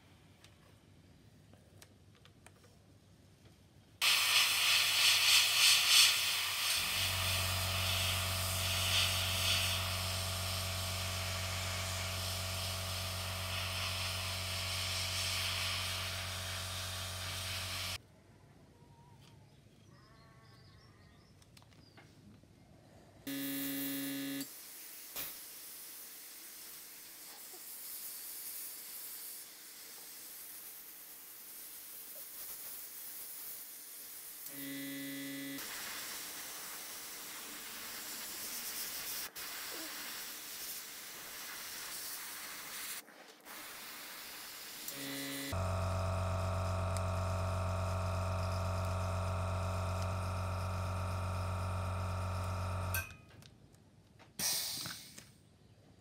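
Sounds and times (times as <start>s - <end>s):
airbrush hiss: 4.0s - 18.0s, 24.5s - 34.8s, 35.4s - 45.6s
compressor motor hum: 23.3s - 24.4s, 44.9s - 53.0s.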